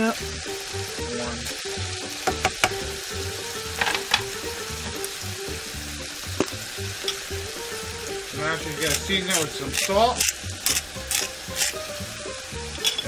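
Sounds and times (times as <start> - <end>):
chicken sizzling in a frying pan: 0.0 - 13.0
spatula knocking and scraping pan: 2.2 - 3.0, 3.7 - 5.0.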